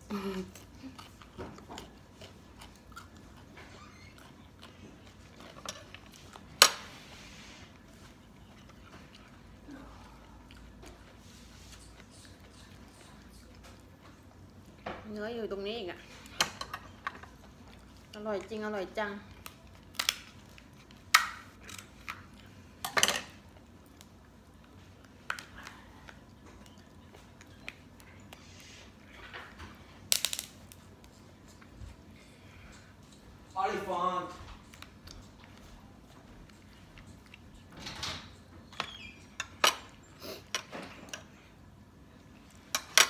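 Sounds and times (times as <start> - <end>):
person eating: 0.0 - 14.6.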